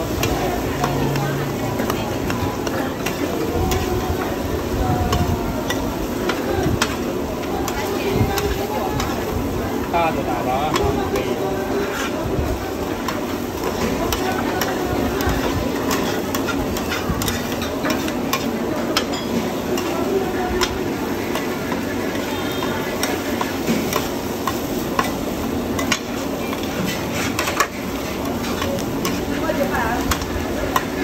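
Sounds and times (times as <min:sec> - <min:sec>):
food sizzling: 0:00.0 - 0:31.0
metal spatulas scraping a griddle: 0:10.0 - 0:31.0.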